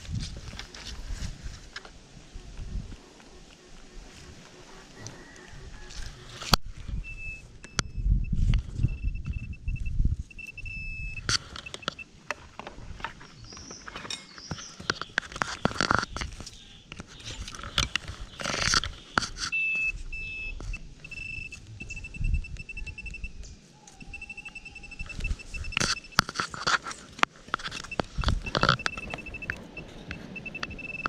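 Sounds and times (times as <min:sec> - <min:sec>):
soil scraping and crunching: 0:00.0 - 0:03.2, 0:03.8 - 0:07.2, 0:10.2 - 0:21.7, 0:23.9 - 0:31.0
metal detector beeping: 0:06.9 - 0:12.1, 0:17.8 - 0:27.0, 0:27.6 - 0:31.0.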